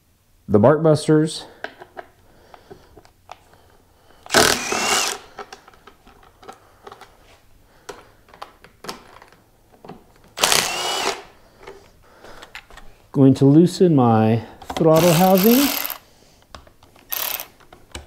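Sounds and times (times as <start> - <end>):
cordless driver motor whine: 4.3 - 5.2, 10.4 - 11.2.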